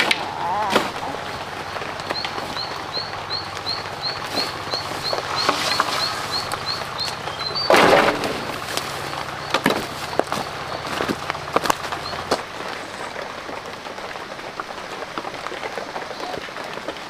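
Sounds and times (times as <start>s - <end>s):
twigs snapping: 0.0s - 13.2s
footsteps through dry brush: 0.0s - 16.4s
crash of vegetation: 4.3s - 12.7s.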